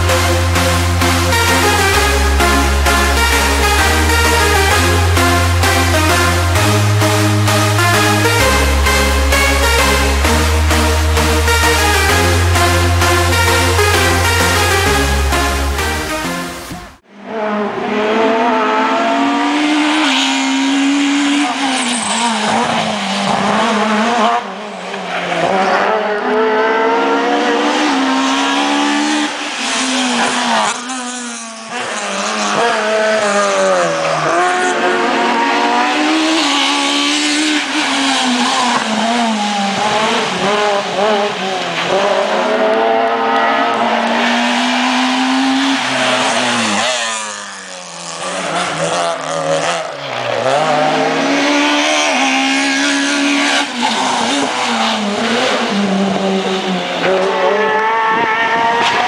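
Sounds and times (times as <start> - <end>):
rally cars racing past: 17.1 - 59.0.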